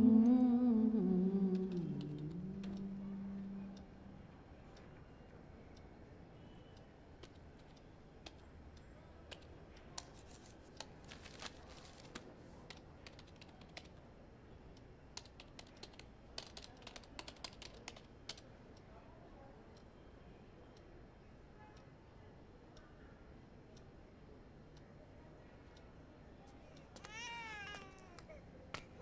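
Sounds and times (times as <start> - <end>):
computer keyboard typing: 12.7 - 13.9, 15.2 - 18.4.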